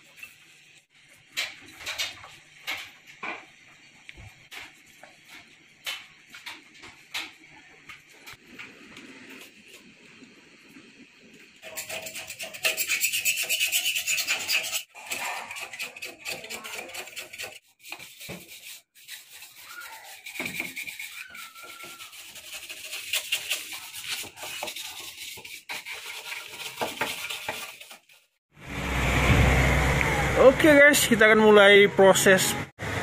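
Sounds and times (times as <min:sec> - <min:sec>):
scraper scraping paint off metal: 0:11.6 - 0:28.4.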